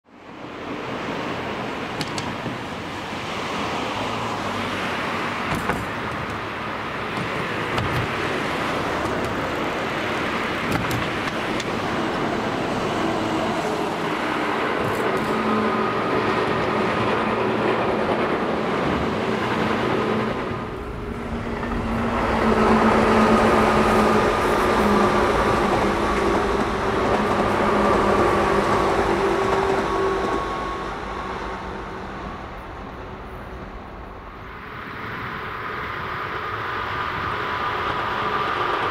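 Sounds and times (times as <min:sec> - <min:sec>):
electric train rumbling on rails: 0:00.1 - 0:38.9
train motor hum: 0:05.1 - 0:34.3.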